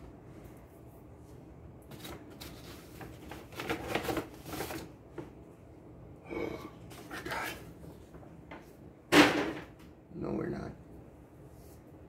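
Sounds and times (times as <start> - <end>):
paper bag rustling and crinkling: 1.9 - 5.3.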